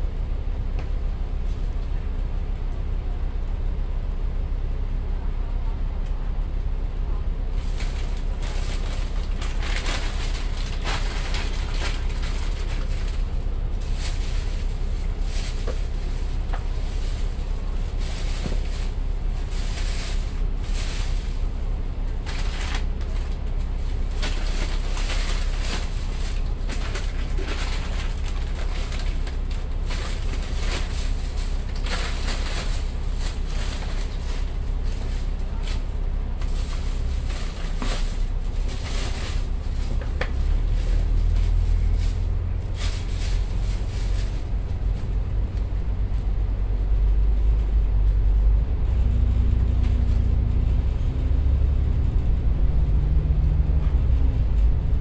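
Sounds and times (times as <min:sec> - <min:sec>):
bus diesel engine: 0:00.0 - 0:55.0
engine whine rising: 0:47.0 - 0:55.0.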